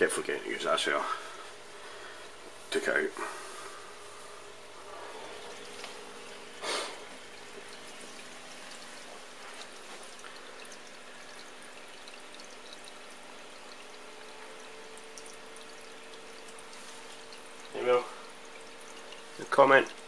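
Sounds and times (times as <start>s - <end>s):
water trickling and splashing: 0.7s - 20.0s
water drips: 4.4s - 20.0s.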